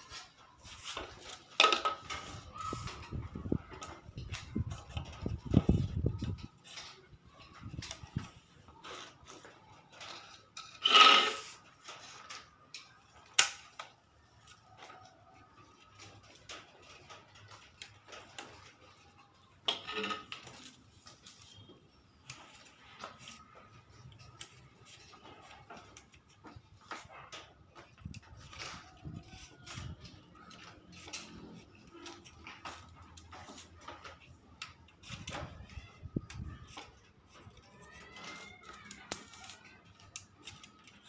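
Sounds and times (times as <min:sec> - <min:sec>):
scraping rustle: 0:00.0 - 0:13.0.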